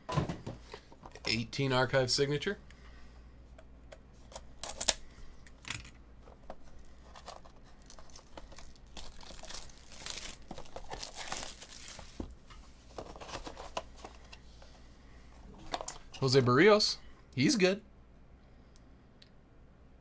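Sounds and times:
plastic shrink wrap crinkling: 6.6s - 12.4s.

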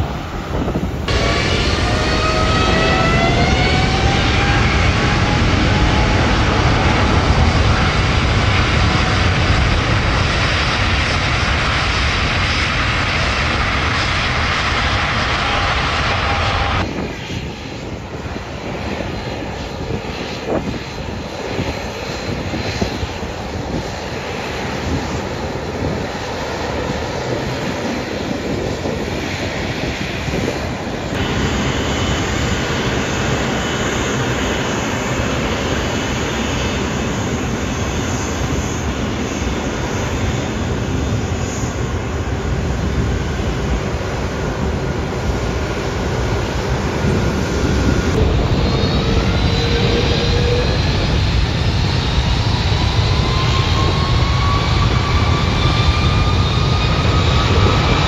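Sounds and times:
distant jet rumble: 0.0s - 58.0s
jet engines roaring with a whine: 0.0s - 58.0s.

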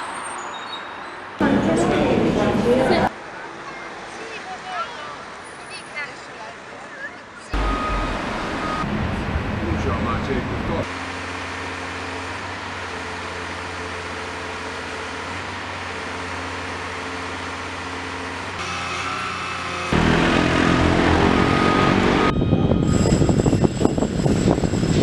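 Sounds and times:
diesel engine humming: 7.6s - 25.0s
loud mechanical drone: 7.6s - 25.0s.

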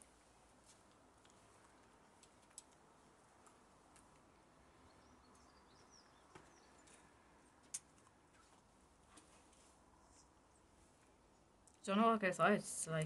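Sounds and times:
small sharp clicks: 0.9s - 2.8s.

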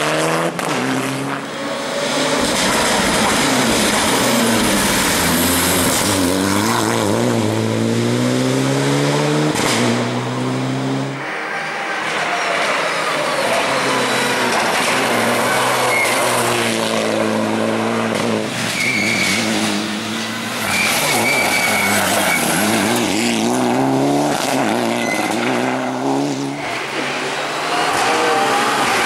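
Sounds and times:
rally car engine racing: 0.0s - 29.0s
tyre squeals: 11.2s - 16.8s, 18.6s - 23.3s, 24.8s - 25.9s.

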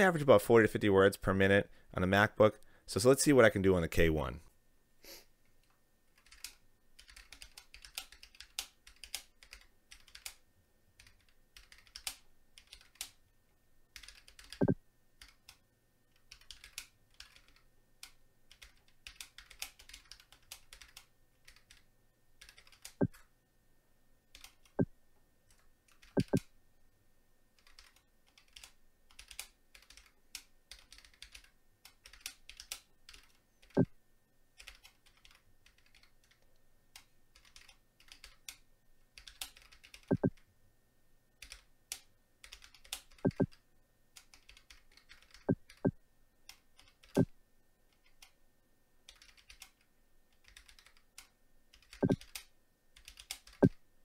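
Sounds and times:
fast typing on mechanical keyboard: 6.1s - 10.4s, 11.0s - 13.2s, 14.0s - 23.0s, 24.3s - 24.8s, 25.5s - 26.4s, 27.6s - 33.8s, 34.6s - 36.4s, 37.0s - 40.4s, 41.4s - 43.6s, 44.2s - 45.9s, 46.5s - 47.2s, 47.9s - 48.4s, 49.1s - 53.7s.

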